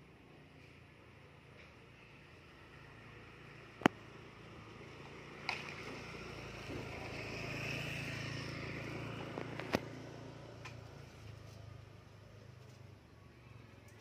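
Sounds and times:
distant vehicle engine passing: 1.8 - 12.4.

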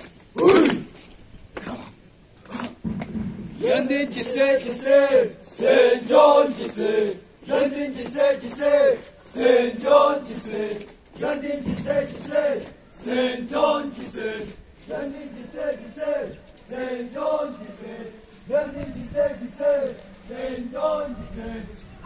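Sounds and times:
young men chanting in unison: 3.6 - 22.0.

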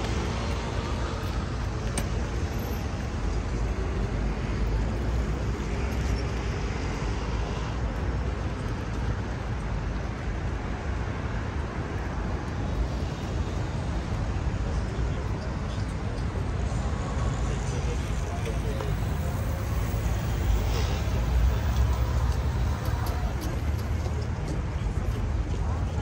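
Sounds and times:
city street traffic rumble: 0.0 - 26.0.

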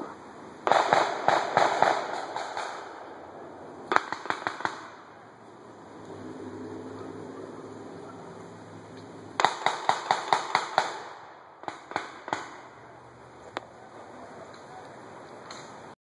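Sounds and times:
blank gunshots: 0.6 - 3.1, 3.9 - 5.1, 9.4 - 12.8.

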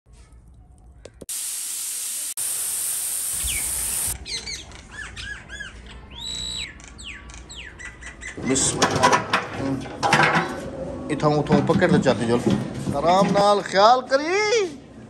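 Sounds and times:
loud steady hiss: 1.3 - 4.2
small birds chirping: 3.0 - 8.4.

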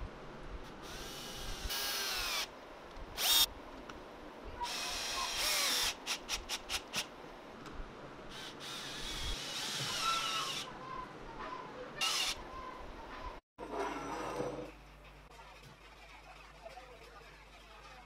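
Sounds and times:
electric drill whining: 0.8 - 2.5, 3.2 - 3.5, 8.4 - 10.7, 12.0 - 12.4.

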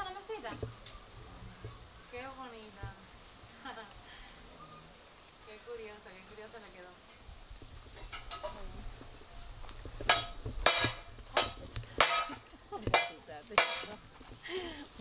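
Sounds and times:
metal clanking strikes: 10.0 - 14.0.

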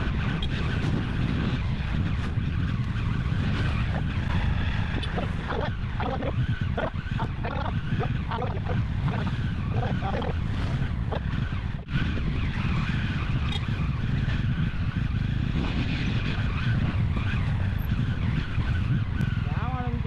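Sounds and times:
wind: 0.0 - 20.0.

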